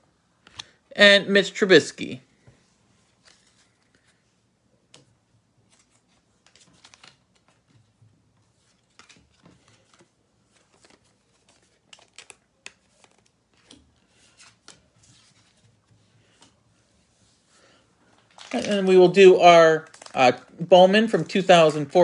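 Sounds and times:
hands handling trading cards: 3.1s - 4.3s, 4.9s - 16.6s.

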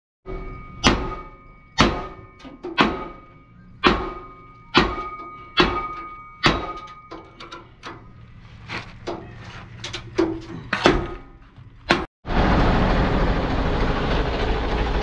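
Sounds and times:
hammer striking steel rail: 0.3s - 8.2s.

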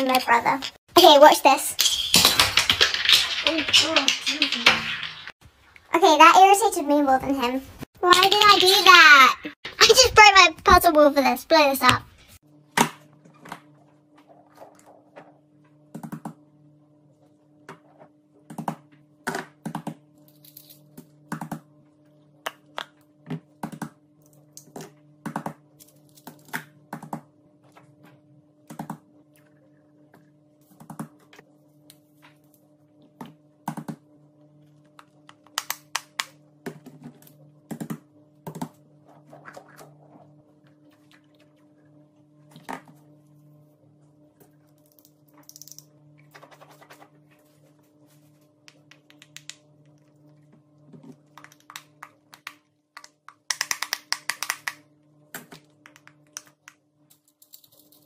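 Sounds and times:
plastic toys clicking and tapping: 2.1s - 5.3s, 8.1s - 9.3s, 51.4s - 54.8s.

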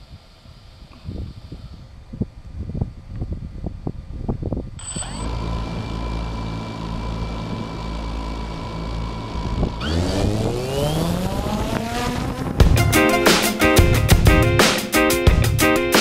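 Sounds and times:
drone motors whining: 4.8s - 12.8s.

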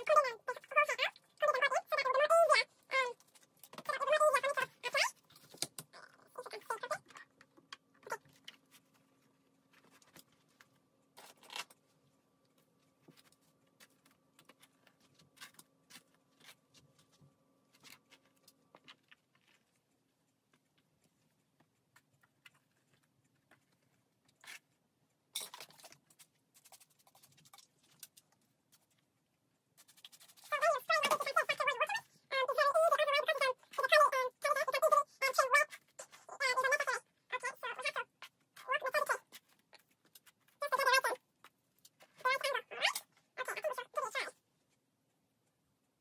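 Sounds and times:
faint steady hum: 0.0s - 46.0s
soft rustles and small clicks: 3.1s - 32.0s, 37.9s - 43.4s.

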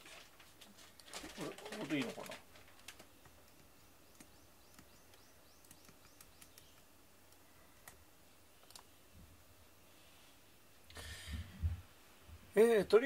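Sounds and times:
computer mouse and keyboard clicks: 1.7s - 8.0s, 8.6s - 8.9s.

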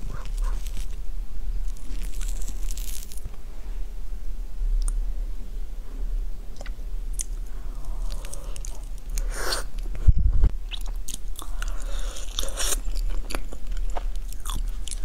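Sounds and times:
sticky chewing: 0.0s - 1.0s, 10.7s - 15.0s.

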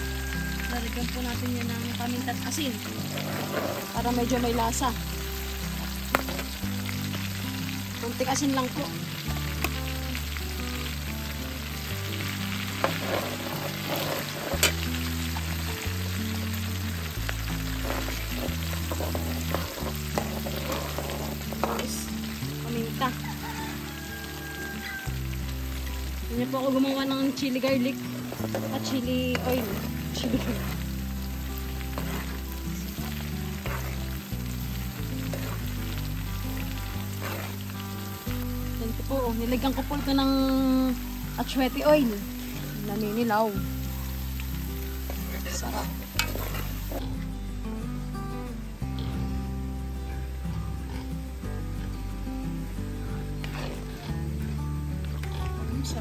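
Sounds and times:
garlic sizzling in hot oil: 0.0s - 56.0s
metal ladle stirring wok: 12.2s - 15.3s, 17.6s - 22.1s, 27.8s - 38.0s, 45.0s - 47.0s, 53.4s - 53.9s.

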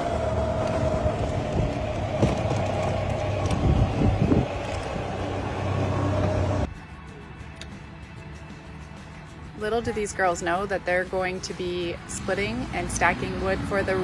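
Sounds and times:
small engine running: 0.0s - 6.7s.

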